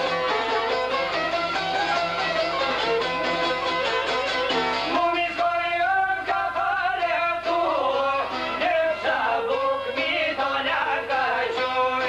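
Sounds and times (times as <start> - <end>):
violin: 0.0 - 5.0
lutes strummed: 0.0 - 12.0
man singing: 4.9 - 12.0.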